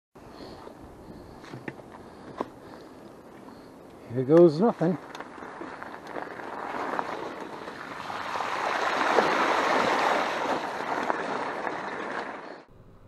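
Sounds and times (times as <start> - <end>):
bike tyres splashing through puddle: 4.8 - 12.7.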